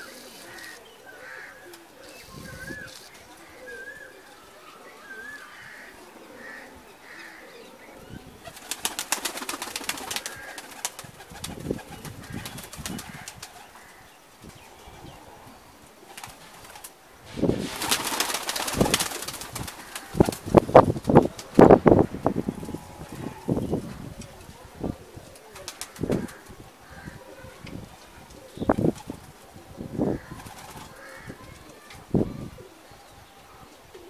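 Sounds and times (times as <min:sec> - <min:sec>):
pigeons cooing: 0:00.0 - 0:34.0
pigeon wings flapping: 0:08.4 - 0:13.7, 0:16.1 - 0:21.7, 0:25.4 - 0:26.4, 0:30.2 - 0:31.1.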